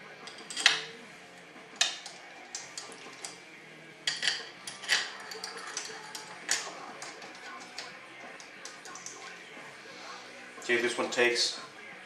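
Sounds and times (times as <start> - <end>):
metal parts clicking on a workbench: 0.2 - 1.0, 1.8 - 3.4, 4.0 - 9.3.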